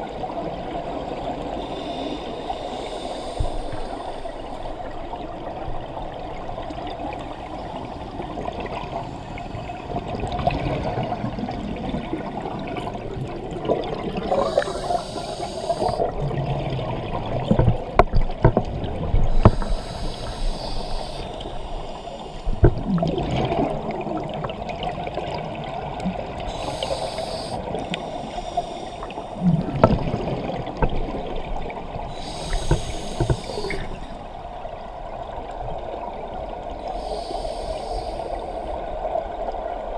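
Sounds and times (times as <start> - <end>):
regulator hissing inhale: 1.5 - 5.1, 14.2 - 16.2, 19.3 - 22.8, 26.4 - 29.6, 32.0 - 34.4, 36.8 - 38.9.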